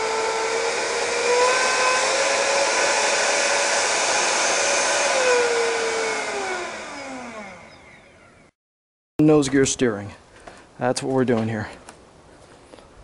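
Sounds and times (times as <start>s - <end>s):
electric ducted fans whining: 0.0s - 8.5s.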